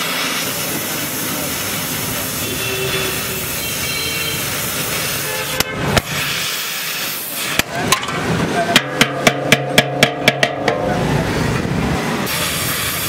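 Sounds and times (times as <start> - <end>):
welding torch flame hissing: 0.0 - 7.8, 12.2 - 13.0
sharp knocks: 7.6 - 10.9.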